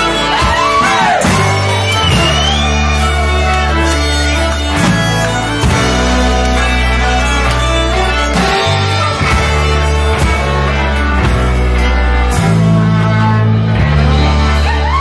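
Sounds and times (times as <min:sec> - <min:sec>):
folk-rock band with fiddles: 0:00.0 - 0:15.0.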